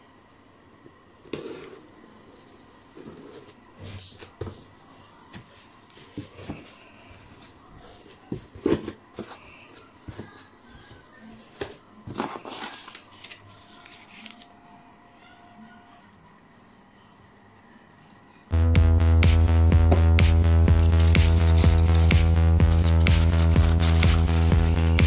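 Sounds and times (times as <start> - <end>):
cardboard scraping and rustling: 1.3 - 14.5, 20.8 - 25.0.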